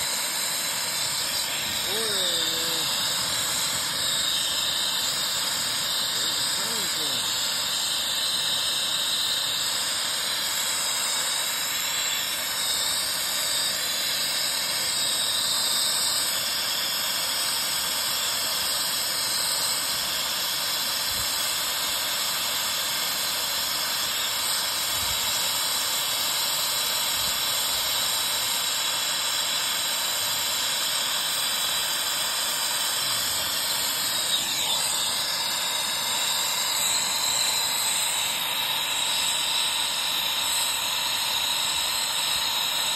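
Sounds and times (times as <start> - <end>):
torch flame hissing: 0.0 - 42.9.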